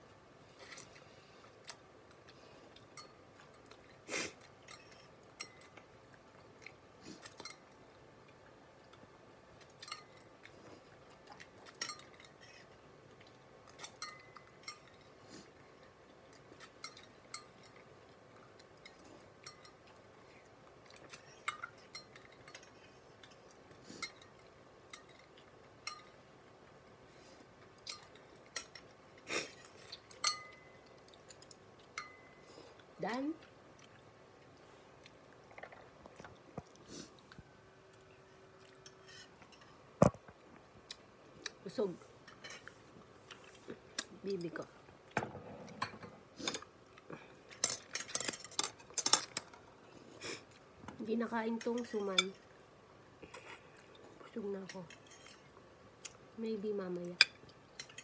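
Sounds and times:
chewing: 0:00.6 - 0:41.6.

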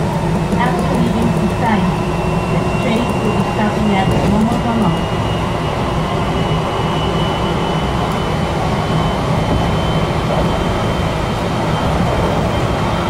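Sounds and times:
train wheels rumbling on rail: 0:00.0 - 0:13.0.

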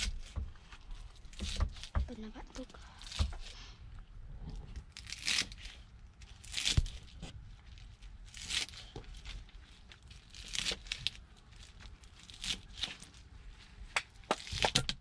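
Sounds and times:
knife cutting crunchy stalks: 0:04.8 - 0:07.4, 0:10.2 - 0:13.2.

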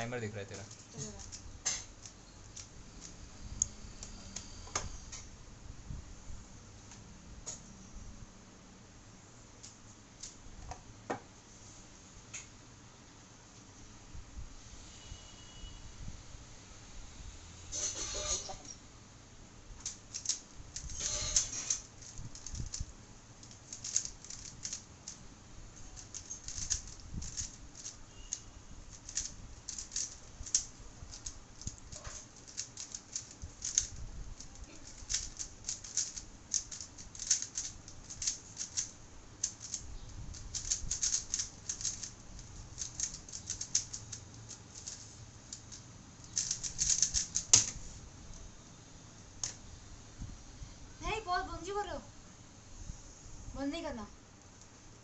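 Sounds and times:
plastic puzzle cube clicking: 0:19.8 - 0:21.0, 0:21.7 - 0:25.2, 0:25.9 - 0:28.0, 0:29.0 - 0:42.1, 0:42.8 - 0:47.7.

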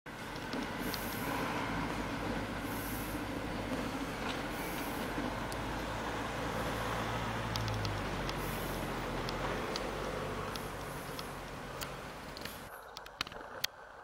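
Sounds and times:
engine rumble: 0:00.1 - 0:14.0
faint high ticks: 0:06.8 - 0:13.8.

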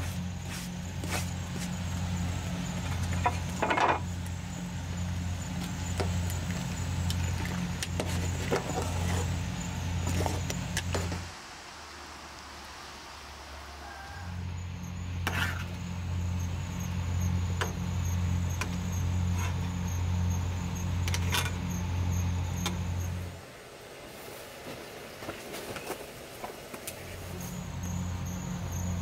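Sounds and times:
electric motor humming: 0:00.0 - 0:11.6.

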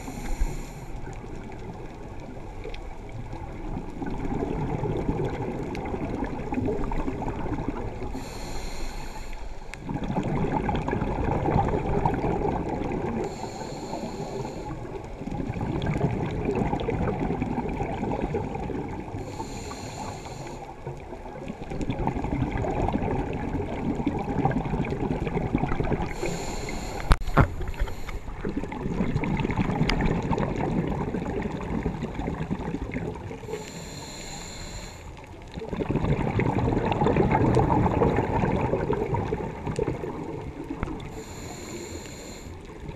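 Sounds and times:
regulator hissing inhale: 0:00.0 - 0:01.2, 0:08.0 - 0:09.9, 0:13.2 - 0:14.9, 0:19.1 - 0:21.0, 0:26.0 - 0:28.4, 0:33.4 - 0:35.3, 0:41.0 - 0:42.8
exhaled bubbles rumbling: 0:00.0 - 0:13.4, 0:14.4 - 0:19.4, 0:20.7 - 0:33.8, 0:35.2 - 0:41.5.

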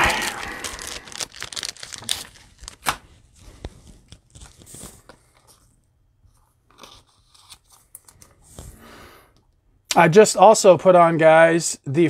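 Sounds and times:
wrapper rustling: 0:00.0 - 0:05.1.

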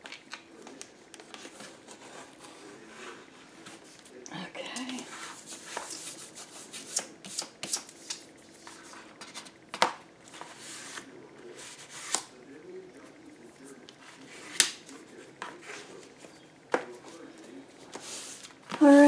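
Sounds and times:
paper rustling: 0:05.0 - 0:12.3, 0:13.7 - 0:19.0.

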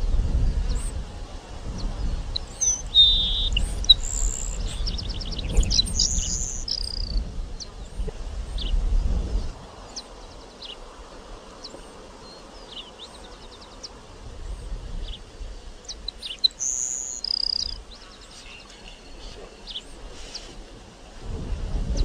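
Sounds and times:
sparrow singing: 0:02.0 - 0:08.7, 0:15.8 - 0:20.6.

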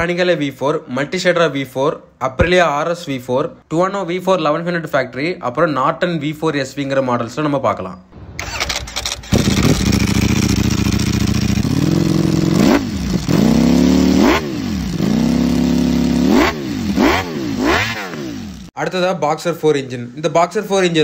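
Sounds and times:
motorcycle engine idling and revving: 0:08.4 - 0:18.8.

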